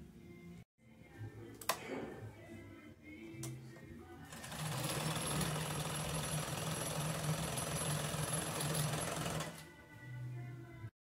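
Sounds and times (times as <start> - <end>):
sewing machine running: 4.3 - 9.7.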